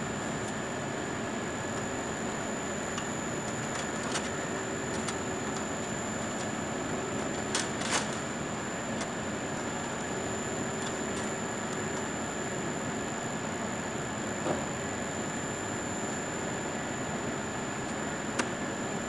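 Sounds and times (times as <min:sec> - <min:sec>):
equipment hum and hiss: 0:00.0 - 0:19.0.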